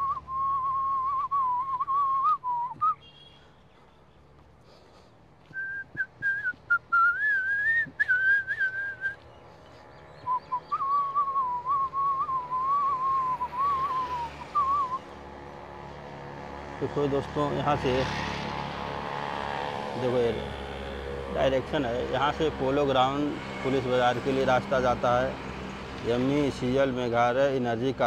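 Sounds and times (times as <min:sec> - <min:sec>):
person whistling a tune: 0:00.0 - 0:03.0, 0:05.5 - 0:09.2, 0:10.3 - 0:15.0.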